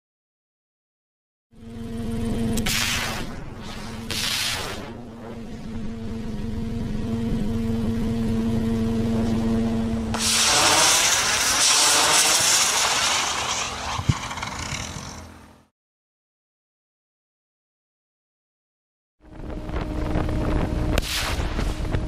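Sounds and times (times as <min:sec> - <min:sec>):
model helicopter rotor humming: 0:01.6 - 0:15.7
model rockets rushing hiss: 0:02.6 - 0:05.2, 0:10.1 - 0:15.3.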